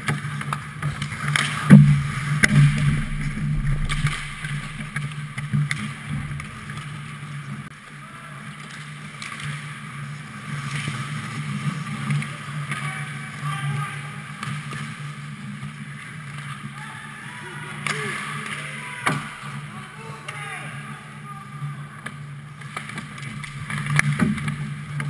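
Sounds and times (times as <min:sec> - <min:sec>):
hockey sticks and puck clacking: 0:00.0 - 0:02.9, 0:08.6 - 0:12.9, 0:22.0 - 0:25.0
steady low hum: 0:01.7 - 0:07.2.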